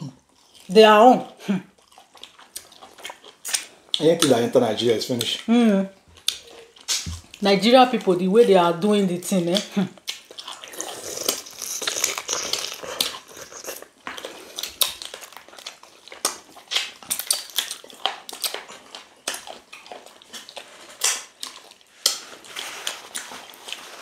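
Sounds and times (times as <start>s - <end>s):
people chewing and smacking: 0.0s - 7.4s, 9.4s - 24.0s
wet clicks and crunches: 14.0s - 23.4s.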